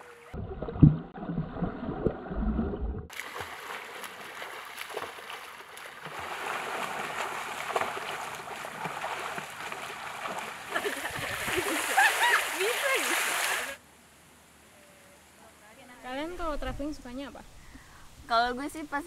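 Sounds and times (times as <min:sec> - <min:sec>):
underwater plunge: 0:00.2 - 0:12.1
underwater bubbling and gurgling: 0:00.3 - 0:03.1
swimmers splashing: 0:03.1 - 0:13.8.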